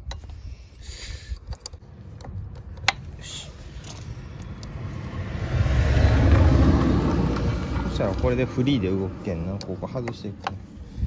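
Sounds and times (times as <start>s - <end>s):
metal clicks of tool on terminal: 1.3s - 3.2s, 3.8s - 4.8s, 9.4s - 10.6s
low rumble: 3.8s - 9.2s.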